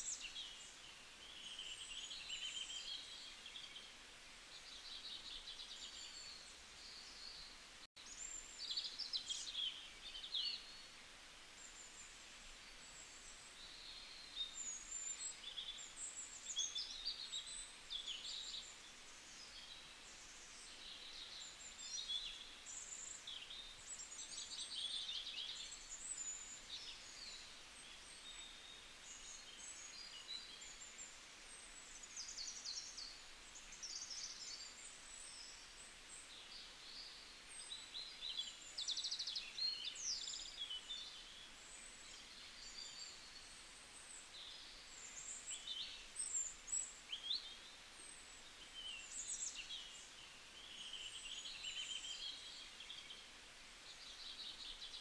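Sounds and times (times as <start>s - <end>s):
soft steady hiss: 0.0s - 55.0s.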